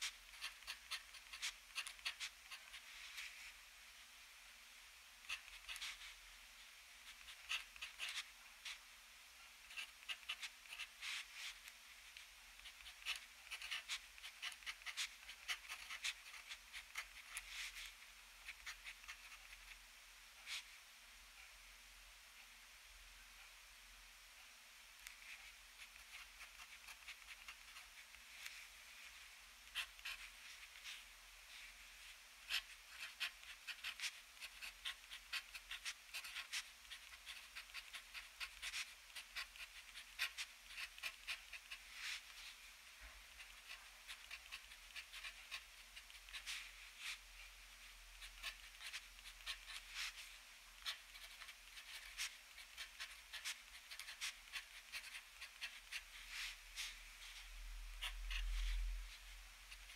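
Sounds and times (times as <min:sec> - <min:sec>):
pen nib scratching paper: 0:00.0 - 0:03.2, 0:05.2 - 0:06.2, 0:07.0 - 0:08.8, 0:09.6 - 0:19.7, 0:25.0 - 0:28.6, 0:29.6 - 0:31.0, 0:32.4 - 0:42.4, 0:43.0 - 0:47.3, 0:48.2 - 0:57.4, 0:58.0 - 0:59.9.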